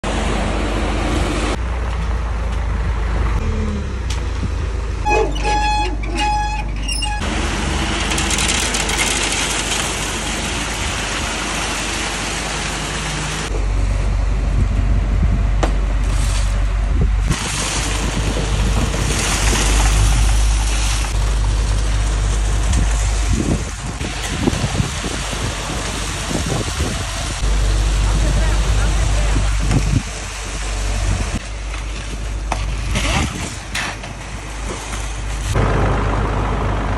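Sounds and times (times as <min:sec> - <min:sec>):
concrete mixer truck running: 0:00.0 - 0:36.9
wet concrete churning: 0:07.6 - 0:13.5, 0:17.3 - 0:35.4.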